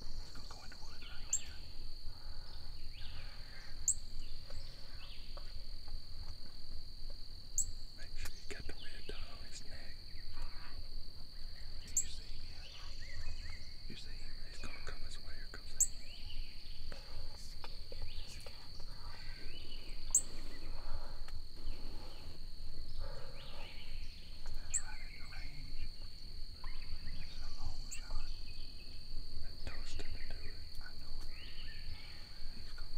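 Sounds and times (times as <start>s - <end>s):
crickets chirping: 0.0s - 32.9s.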